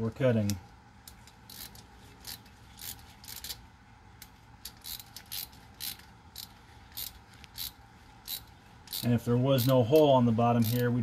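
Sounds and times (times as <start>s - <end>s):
hand ratchet clicking: 1.1s - 3.6s, 4.2s - 10.9s.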